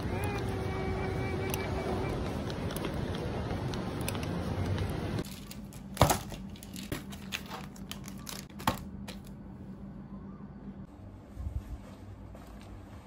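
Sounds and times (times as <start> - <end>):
scattered clicks: 0.0 - 5.0
steady background hum: 0.0 - 13.0
plastic packaging crinkling: 4.7 - 9.3.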